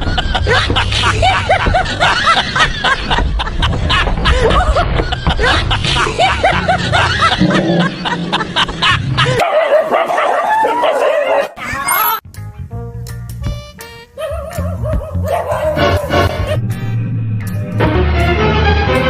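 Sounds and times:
dog barking and yelping: 9.3s - 12.2s, 14.2s - 16.6s
background music: 12.2s - 19.0s.

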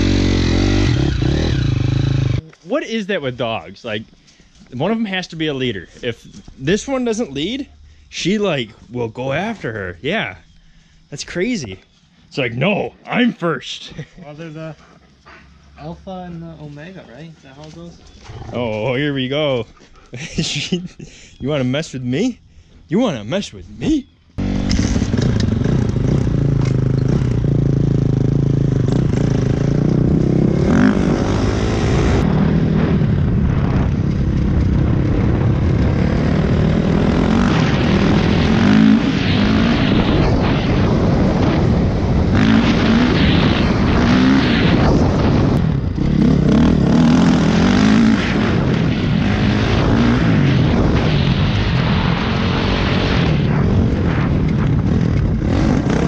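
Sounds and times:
dirt bike engine revving: 0.0s - 2.4s, 24.4s - 33.1s, 33.7s - 56.0s
wind noise on microphone: 30.4s - 56.0s.

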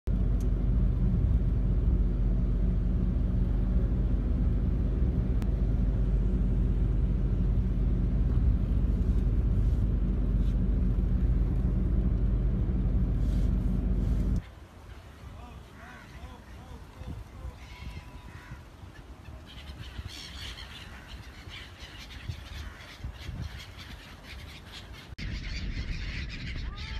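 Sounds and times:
vehicle engine rumble: 0.0s - 14.8s
road noise: 0.1s - 23.1s.

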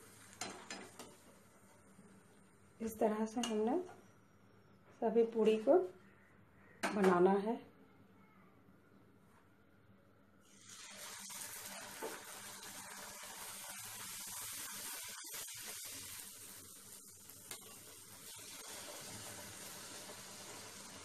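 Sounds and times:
bread sizzling in hot oil: 0.0s - 2.5s, 10.4s - 21.0s.

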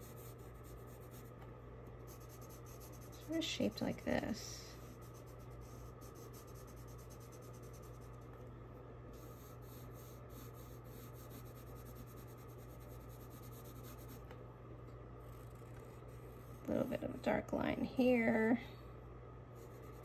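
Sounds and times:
colored pencil scratching on paper: 0.0s - 1.3s, 2.0s - 8.3s, 9.2s - 14.2s, 19.6s - 20.0s
low steady hum: 0.0s - 20.0s.

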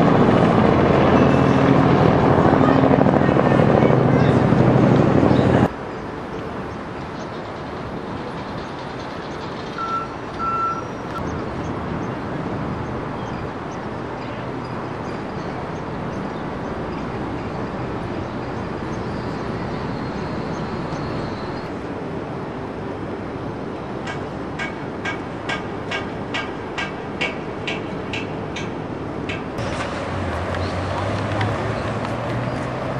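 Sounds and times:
distant traffic hum: 0.0s - 32.9s
short high beeps: 9.8s - 10.9s.

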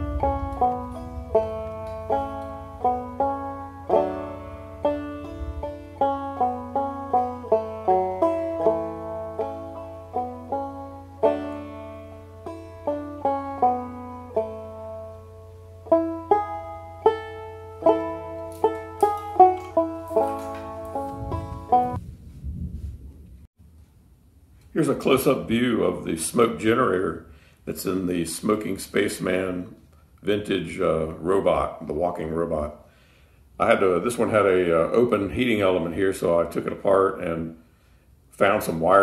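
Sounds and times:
banjo music: 0.0s - 22.0s
steady low hum: 0.0s - 31.4s.

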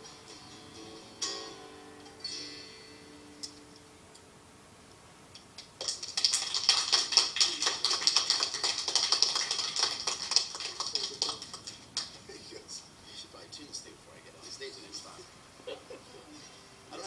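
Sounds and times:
acoustic guitar chord: 0.0s - 3.9s.

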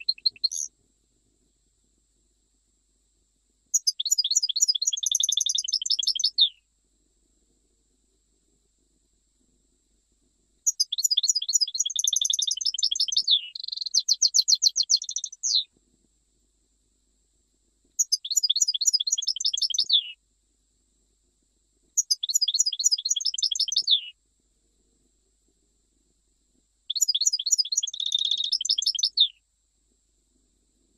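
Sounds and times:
goldfinch twittering trills: 26.9s - 29.3s.

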